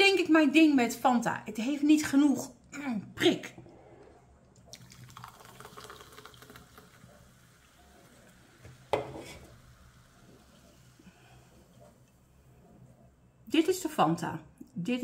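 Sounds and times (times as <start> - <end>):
orangeade fizzing in a glass: 3.7 - 12.0
glass set down on table: 8.9 - 9.5.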